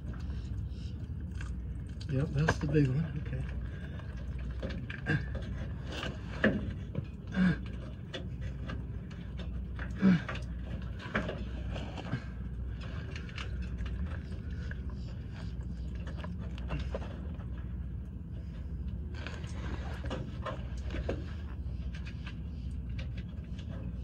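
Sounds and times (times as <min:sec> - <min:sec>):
low rumble: 0:00.0 - 0:24.0
small clicks and scrapes: 0:08.1 - 0:24.0.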